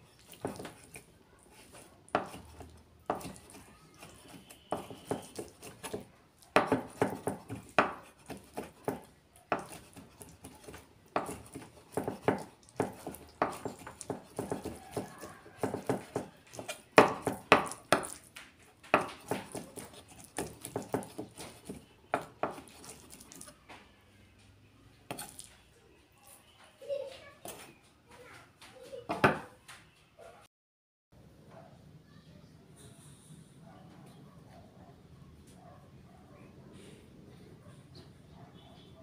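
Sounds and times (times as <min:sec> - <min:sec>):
knife chopping on wooden board: 0:00.2 - 0:23.5, 0:29.1 - 0:29.5.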